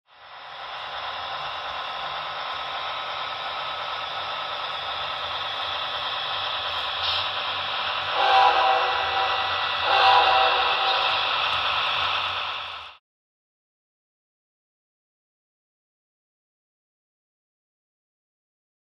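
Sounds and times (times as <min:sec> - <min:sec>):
short horn blasts: 0:08.1 - 0:11.1.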